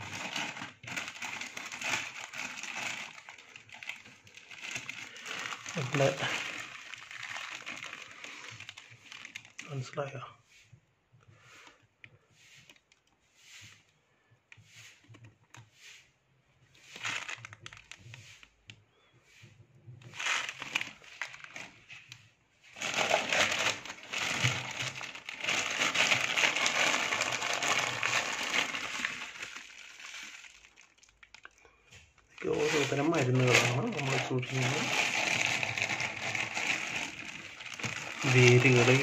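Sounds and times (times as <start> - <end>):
plastic bags crinkling: 0.0 - 10.0, 16.8 - 18.6, 20.0 - 39.0.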